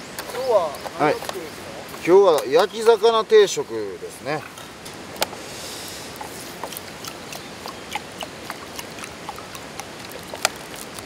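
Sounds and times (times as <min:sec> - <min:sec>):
mountain stream rushing: 0:00.0 - 0:11.0.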